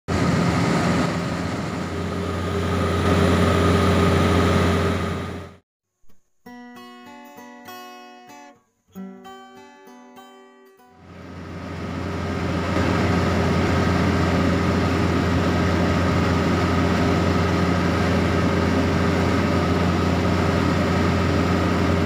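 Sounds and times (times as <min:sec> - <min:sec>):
combine harvester engine running: 0:00.1 - 0:05.6, 0:11.0 - 0:22.0
plucked guitar tune: 0:06.1 - 0:11.2.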